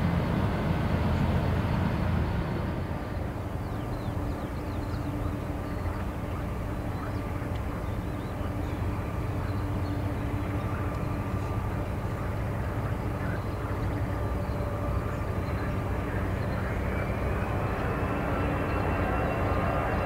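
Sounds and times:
jet engines rumbling: 0.0s - 20.0s
high whine rising in pitch: 14.4s - 20.0s.

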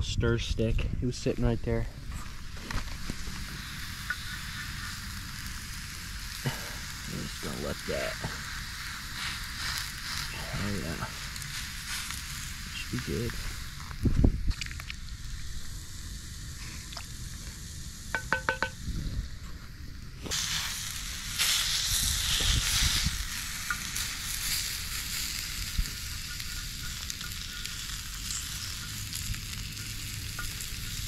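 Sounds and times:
fish sizzling: 2.0s - 31.0s
ringing metal taps: 18.2s - 18.8s.

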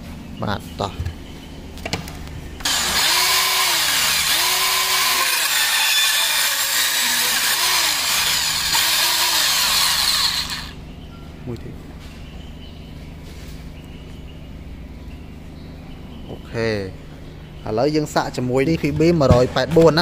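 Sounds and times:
low motor hum: 0.0s - 17.6s
band saw cutting metal tube: 2.6s - 10.8s.

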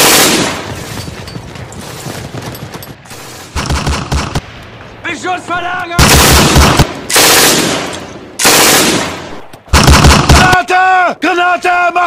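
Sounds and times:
heavy gunshots: 0.0s - 0.8s, 3.5s - 4.5s, 6.0s - 10.7s
machine-gun fire: 0.0s - 0.8s, 3.6s - 4.4s, 6.0s - 10.6s.

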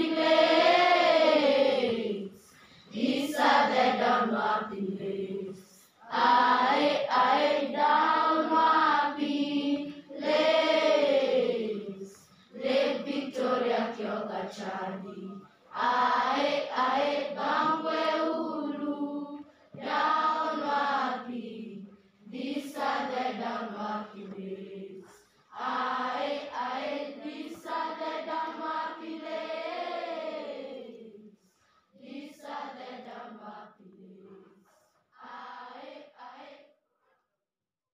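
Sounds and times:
voices singing a chant: 0.0s - 36.7s.

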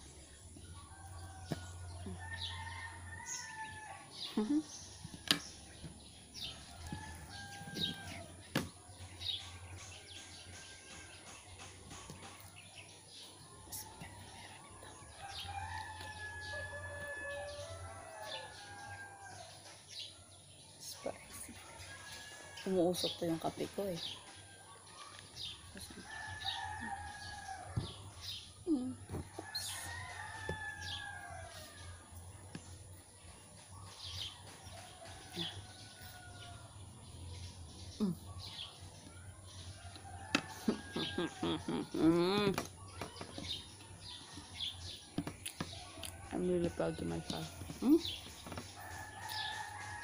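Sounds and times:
small birds chirping: 0.0s - 50.0s
rooster crowing: 6.8s - 8.3s, 15.1s - 19.5s.

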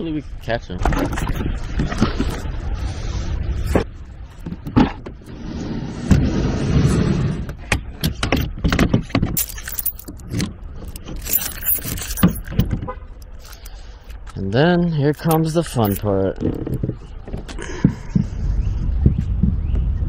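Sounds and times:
rumbling background: 0.0s - 20.0s
fishing gear knocks and clicks: 8.3s - 14.3s, 15.1s - 17.6s.

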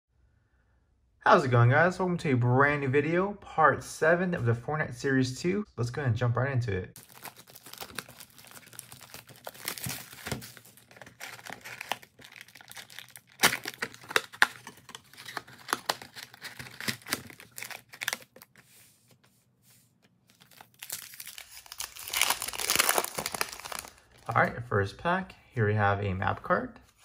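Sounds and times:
plastic shrink wrap crinkling: 7.0s - 18.6s, 20.1s - 24.4s.

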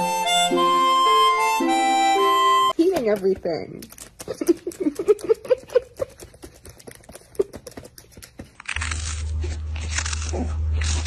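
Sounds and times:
laptop keys clattering: 2.9s - 8.7s.

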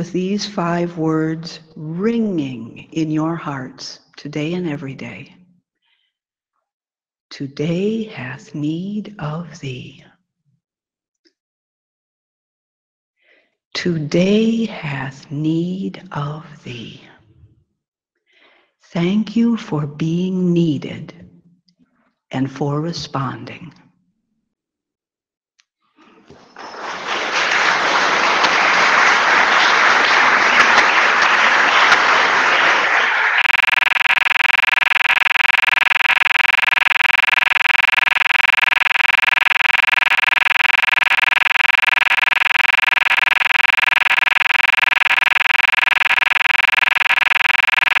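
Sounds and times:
audience applauding: 26.2s - 33.6s.

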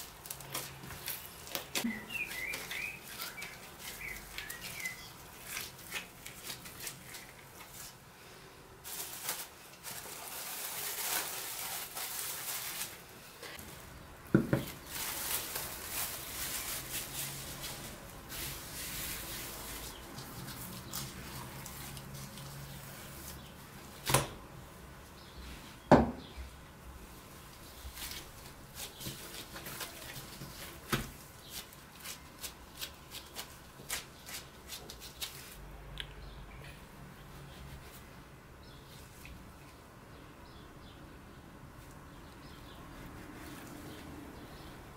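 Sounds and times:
cling film rustling and crinkling: 0.0s - 8.0s, 8.8s - 24.3s, 27.0s - 35.6s.

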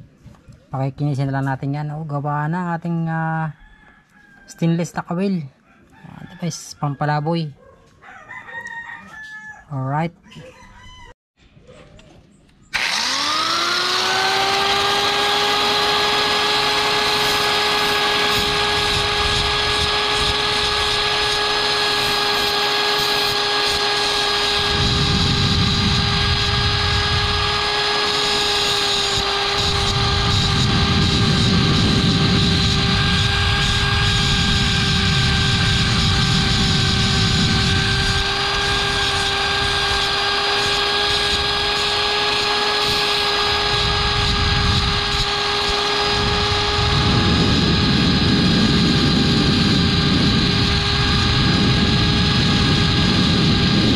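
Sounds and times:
angle grinder whining: 12.7s - 53.9s
metal grinding on disc: 12.8s - 53.9s.

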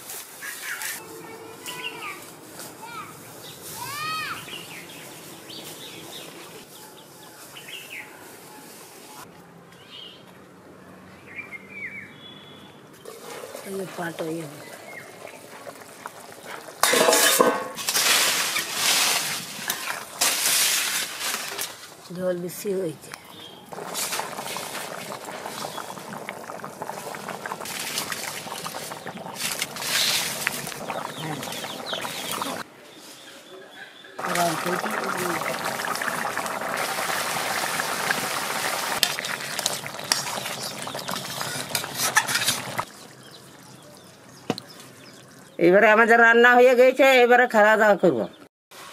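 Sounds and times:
curry bubbling: 13.1s - 21.7s, 23.3s - 32.7s, 34.2s - 45.8s
ladle stirring and scraping pot: 13.1s - 21.8s, 23.7s - 32.6s, 34.2s - 43.7s
metal lid clattering and ringing: 16.8s - 17.8s
spatula scraping and knocking pan: 16.8s - 21.1s, 41.1s - 42.9s.

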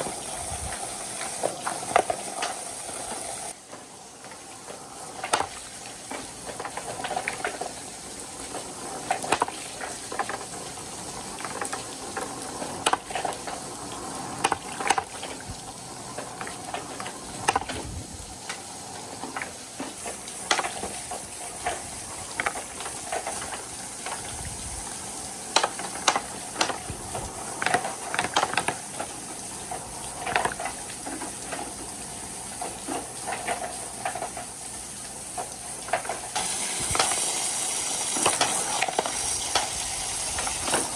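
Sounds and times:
water running down gutters: 0.0s - 40.9s
wooden balls knocking on gutters: 14.4s - 15.5s, 16.2s - 17.9s, 25.5s - 29.1s.

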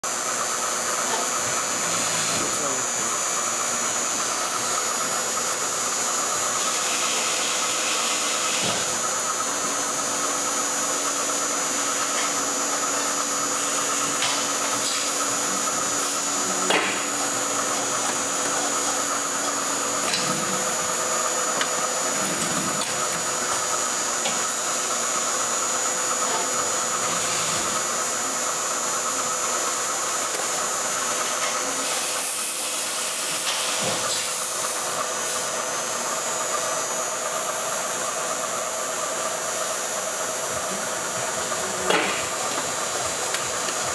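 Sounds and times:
low machine hum: 8.6s - 25.4s.

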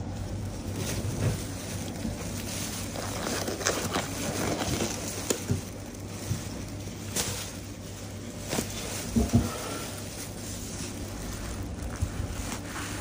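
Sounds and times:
steady low hum: 0.0s - 13.0s
handling clicks and rustles: 0.3s - 13.0s.

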